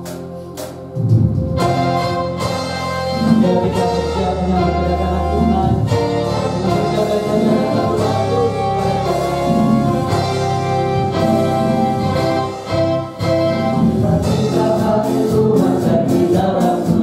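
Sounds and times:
church worship band music: 0.0 - 17.0.

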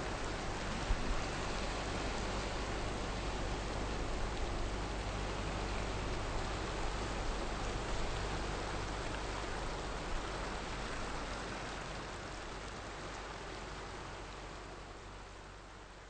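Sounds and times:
small waves washing on shore: 0.0 - 16.0.

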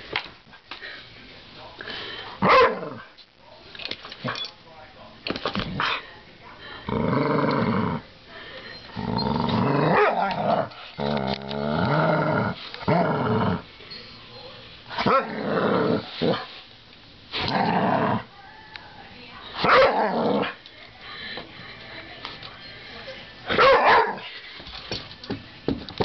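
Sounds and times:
dog growling: 6.8 - 8.1, 8.9 - 13.7, 15.0 - 16.5, 17.4 - 18.3, 19.6 - 20.6.

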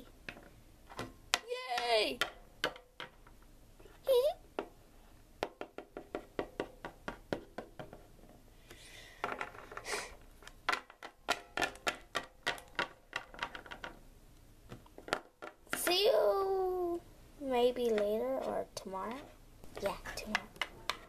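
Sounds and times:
plastic figurines tapping on table: 10.7 - 14.0.

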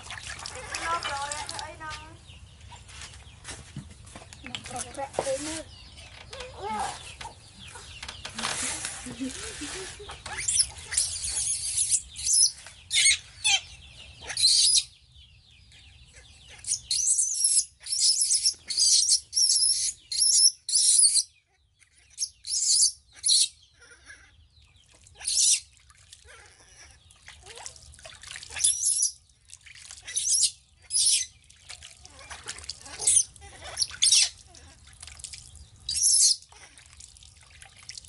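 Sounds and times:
water splashing and dripping: 0.0 - 2.2, 24.8 - 38.0
baby monkey squealing: 10.3 - 14.9, 16.6 - 21.3, 22.2 - 24.3, 25.2 - 25.7, 28.5 - 29.2, 30.0 - 31.3, 32.0 - 34.8, 35.9 - 36.7.

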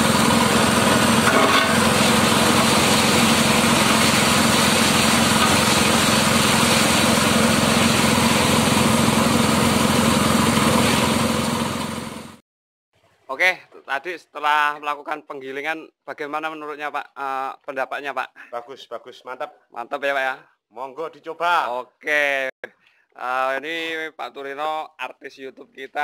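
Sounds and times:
blades chopping grass: 0.0 - 12.4
engine humming: 0.0 - 12.4.

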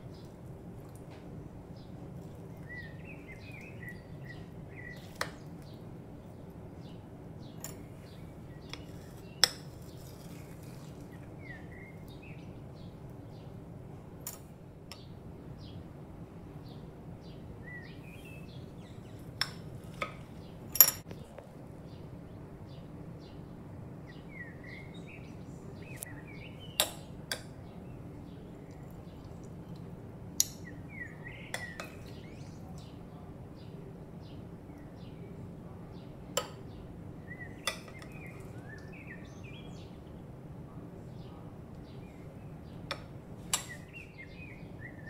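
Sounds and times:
steady low hum: 0.0 - 45.0
faint bird chirps: 1.8 - 13.5, 16.7 - 19.4, 30.6 - 45.0
metal spoon scraping a bowl: 8.7 - 11.0.

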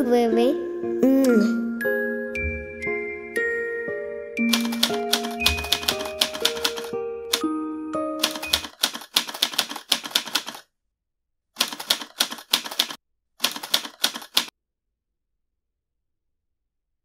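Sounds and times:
typewriter clacking: 4.5 - 7.4, 8.2 - 10.6, 11.6 - 14.5.

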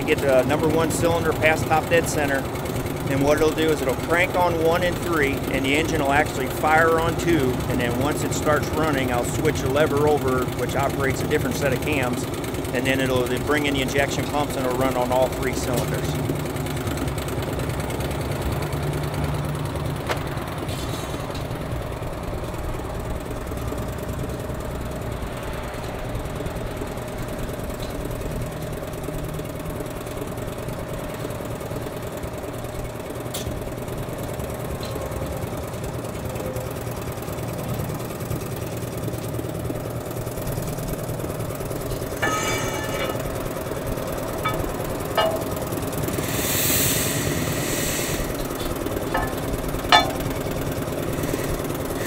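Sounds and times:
mechanical engine-like hum: 0.0 - 52.0.

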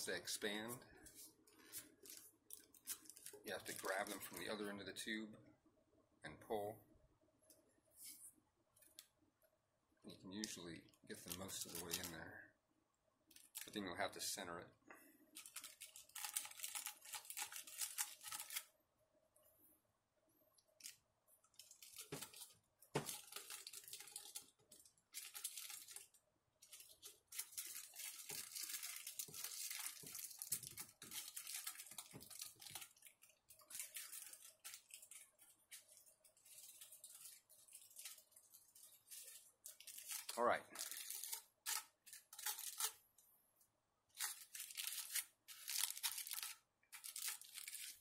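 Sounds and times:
foil and plastic sheets crinkling: 1.6 - 4.6, 11.1 - 12.2, 15.4 - 18.7, 20.8 - 43.0, 44.1 - 48.0.

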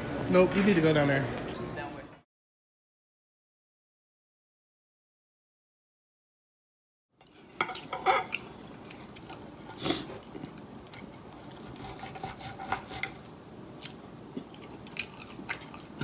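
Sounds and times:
knife and fork scraping plate: 7.2 - 8.4, 10.9 - 13.3, 15.0 - 16.0.

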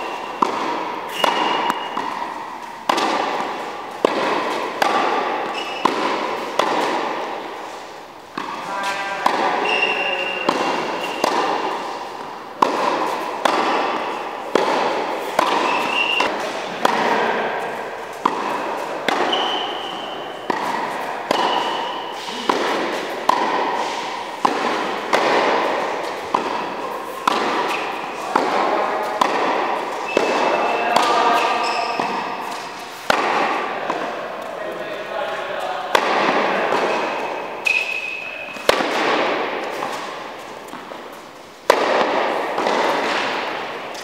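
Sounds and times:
shoes squeaking on court: 0.0 - 34.9, 36.7 - 44.0
tennis balls struck with rackets: 0.0 - 44.0.

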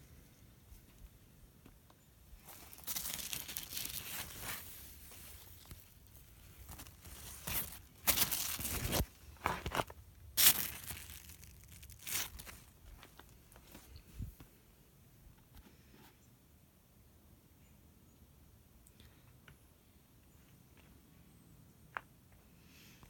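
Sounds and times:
leaves rustling and crinkling: 2.3 - 14.4.

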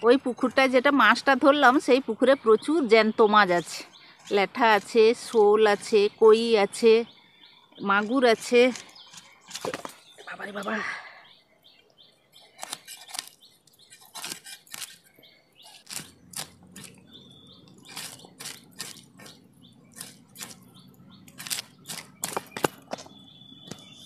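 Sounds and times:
fish scales scraped on blade: 12.6 - 17.0, 17.8 - 20.6.

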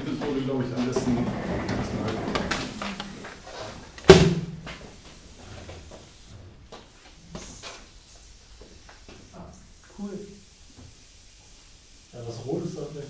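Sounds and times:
loud knock: 4.1 - 4.7.

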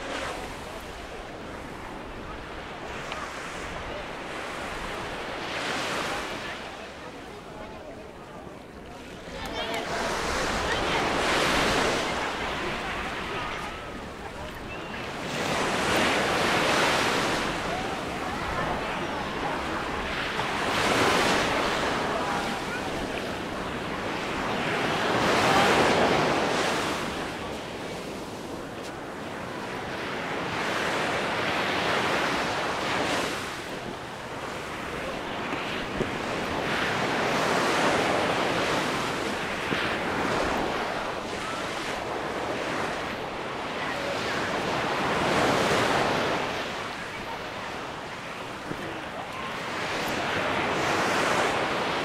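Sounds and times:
waves breaking on beach: 0.0 - 52.0.

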